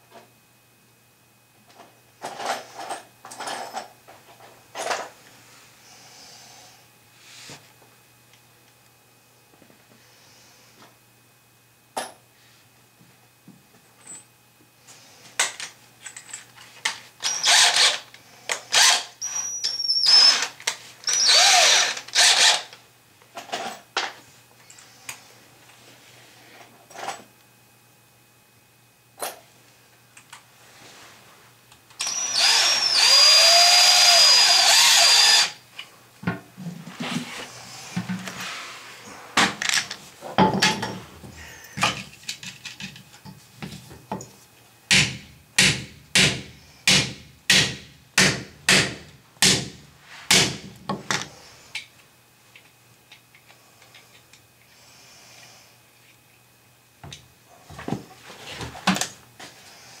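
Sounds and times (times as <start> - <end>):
power drill running: 17.2 - 18.0, 18.6 - 22.8, 32.0 - 35.6.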